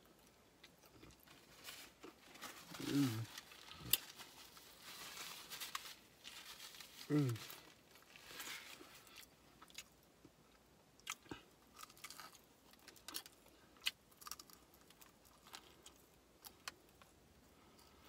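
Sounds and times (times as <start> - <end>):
chewing crunches: 11.0 - 16.8.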